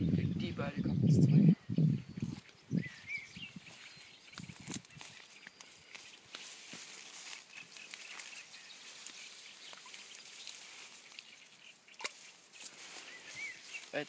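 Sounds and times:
rustling of reeds: 2.2 - 14.0.

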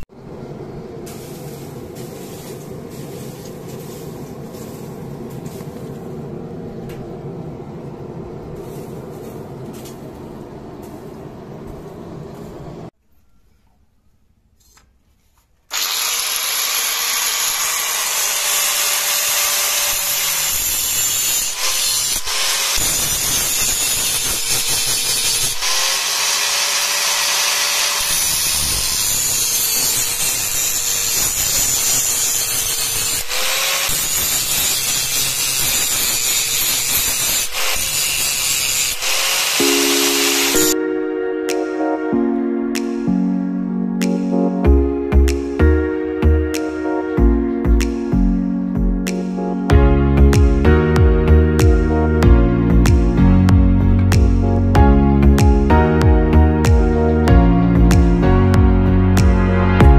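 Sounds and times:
steady low rumble: 0.0 - 12.9
angle grinder grinding steel: 15.7 - 40.8.

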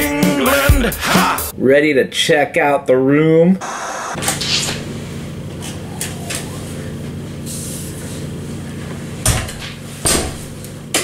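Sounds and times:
steady low hum: 3.6 - 11.0.

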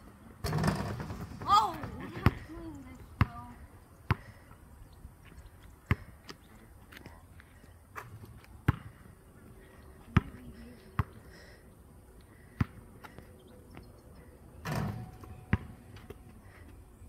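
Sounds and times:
basketball bouncing on hard court: 8.7 - 8.9, 15.5 - 15.7.

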